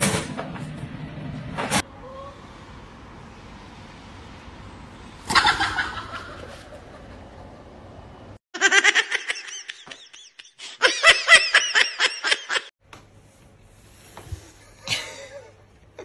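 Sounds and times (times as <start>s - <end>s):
person laughing hard: 8.6s - 12.7s.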